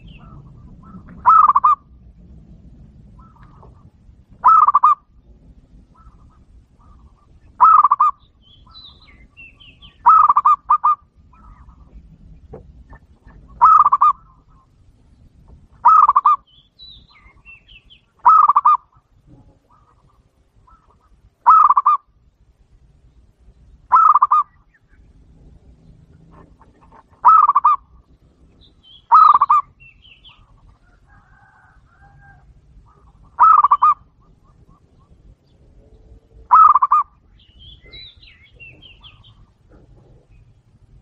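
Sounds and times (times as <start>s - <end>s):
dove trilled cooing: 0.0s - 2.1s, 3.0s - 14.8s, 15.8s - 16.5s, 17.1s - 22.1s, 23.9s - 24.7s, 25.7s - 40.6s
small bird twittering: 15.8s - 18.8s, 26.9s - 27.9s, 28.6s - 30.5s, 32.9s - 35.2s, 36.5s - 39.5s.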